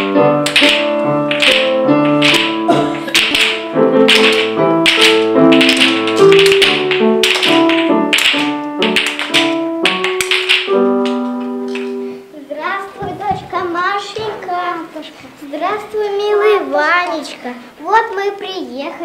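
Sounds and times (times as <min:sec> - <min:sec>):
sharp taps or claps: 0:00.0 - 0:12.0
folk dance music: 0:00.0 - 0:12.2.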